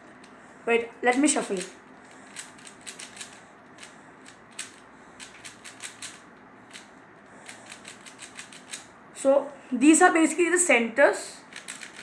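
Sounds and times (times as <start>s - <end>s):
puzzle cube clicking: 2.3s - 8.9s, 11.5s - 12.0s.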